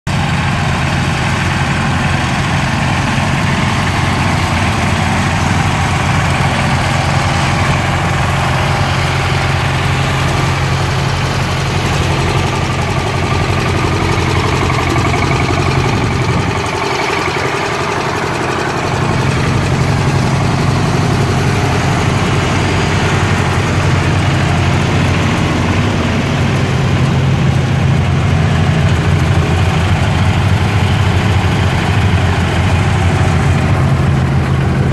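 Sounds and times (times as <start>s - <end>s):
garden tractor engines idling: 0.1s - 34.9s.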